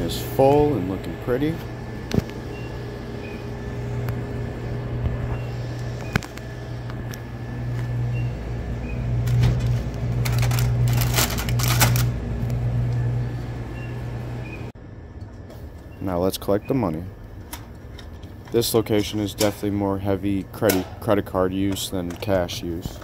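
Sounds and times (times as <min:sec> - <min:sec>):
low steady hum: 0:00.0 - 0:23.0
plastic chip bags crinkling: 0:10.1 - 0:12.2.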